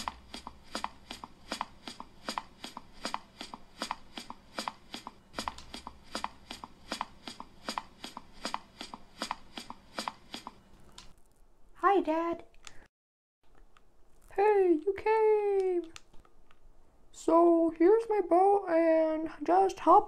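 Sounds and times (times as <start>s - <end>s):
crisp clicking footsteps: 0.0s - 11.4s.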